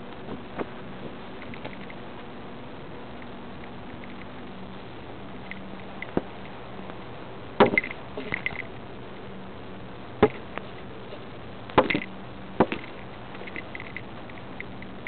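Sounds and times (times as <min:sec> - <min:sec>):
faint low hum: 0:00.0 - 0:15.0
small clicks and rustles: 0:00.1 - 0:02.4, 0:03.1 - 0:04.4, 0:11.9 - 0:15.0.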